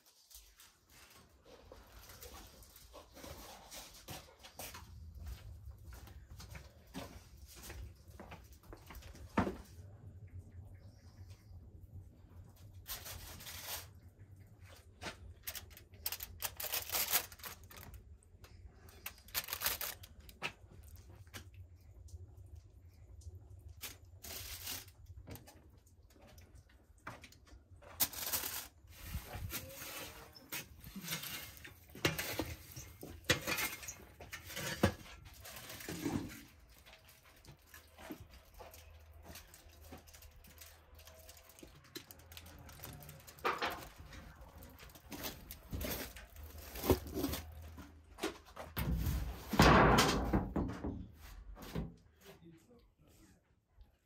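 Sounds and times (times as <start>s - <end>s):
foil crinkling: 12.8s - 14.1s, 14.7s - 21.1s, 23.8s - 25.2s, 28.0s - 47.7s.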